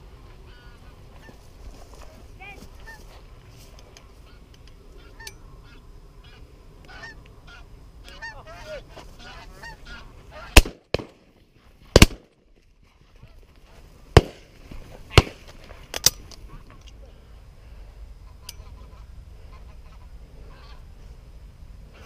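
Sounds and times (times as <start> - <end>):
geese honking: 0.4 - 1.4, 4.2 - 10.6, 18.2 - 20.9
shotgun shots: 10.5 - 11.3, 11.9 - 12.4, 14.2 - 16.1.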